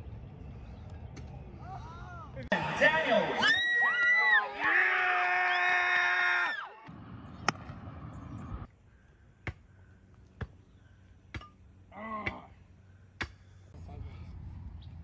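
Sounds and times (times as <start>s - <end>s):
arena crowd cheering: 1.6s - 6.9s.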